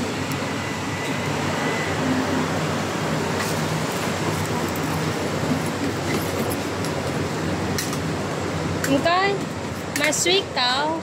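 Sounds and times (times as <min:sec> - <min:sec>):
city street traffic: 0:00.0 - 0:11.0.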